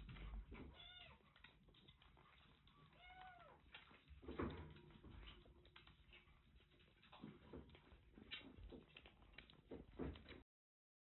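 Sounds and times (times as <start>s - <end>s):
kittens eating from metal dishes: 0.0s - 10.4s.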